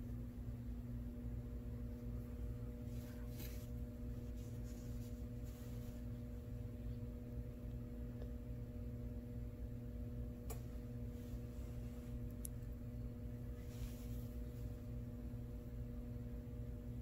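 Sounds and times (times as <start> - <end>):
low hum: 0.0 - 17.0
soft brushing noises: 1.9 - 6.7, 11.0 - 12.4, 13.4 - 15.0.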